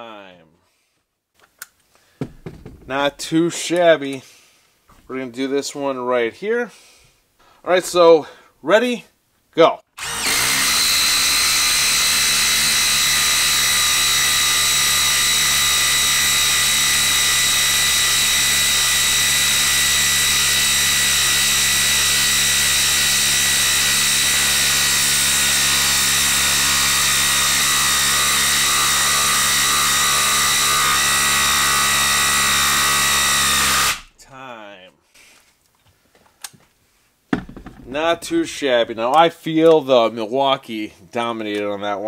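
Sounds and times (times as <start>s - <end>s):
impact driver hammering: 2.2s - 3.3s, 37.4s - 38.3s.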